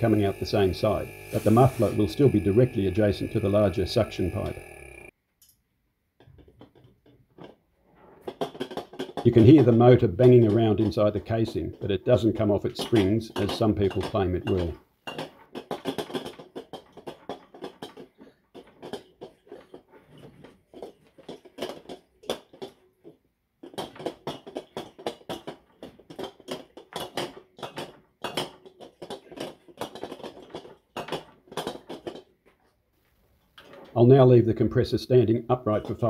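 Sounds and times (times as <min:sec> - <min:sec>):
compressor motor rattling in casing: 0:00.0 - 0:05.1.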